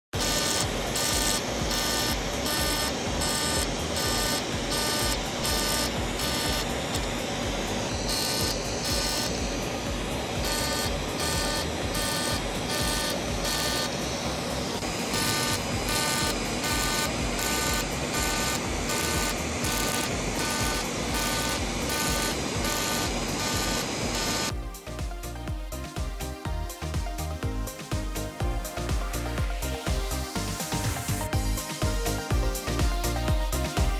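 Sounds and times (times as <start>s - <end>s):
machine beeping: 0.2s - 24.6s.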